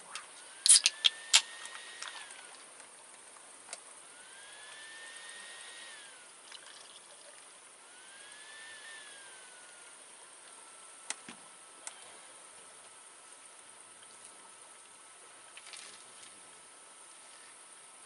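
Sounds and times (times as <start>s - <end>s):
drink pouring into glass: 6.4s - 7.4s.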